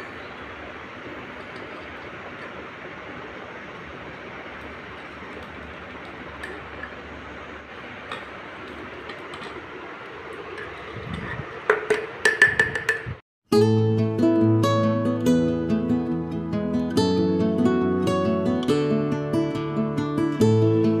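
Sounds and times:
steady hiss: 0.0s - 13.2s
acoustic guitar music: 13.5s - 21.0s.

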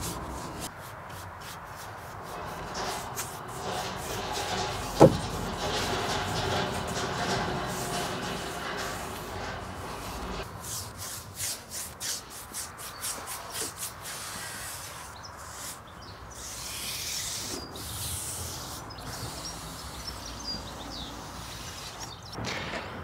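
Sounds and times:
brush swishing on wood: 0.0s - 5.3s, 10.0s - 15.8s
brush rubbing hiss: 0.0s - 6.0s, 7.7s - 22.2s.

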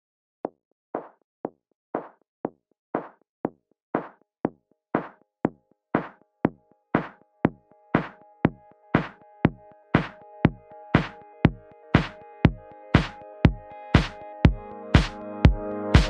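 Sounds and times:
drum machine beat: 5.0s - 5.2s, 6.0s - 16.0s
sustained synth chords: 7.6s - 16.0s.

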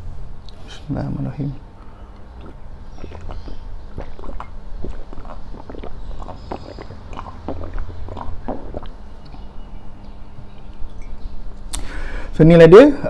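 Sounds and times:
man gulping a drink: 2.2s - 9.6s.

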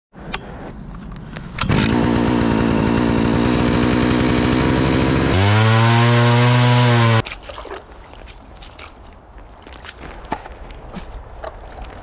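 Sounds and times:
two-stroke ice auger drilling: 1.6s - 7.2s.

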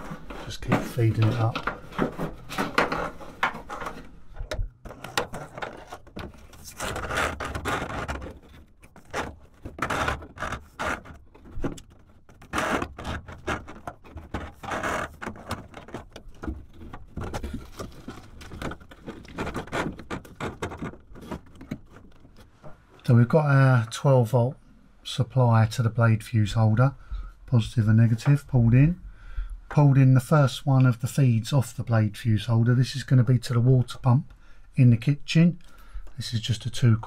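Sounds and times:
plastic conduit scraping on metal: 0.0s - 22.7s.

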